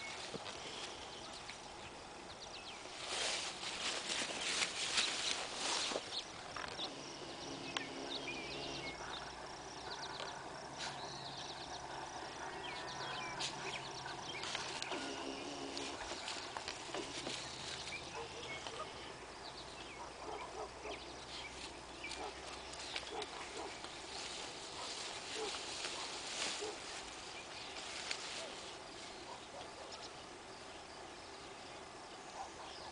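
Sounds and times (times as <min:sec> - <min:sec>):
leaves rustling: 0:00.0 - 0:09.5, 0:13.3 - 0:19.8, 0:21.2 - 0:29.9
birds chirping: 0:00.0 - 0:32.9
faint low hum: 0:00.0 - 0:32.9.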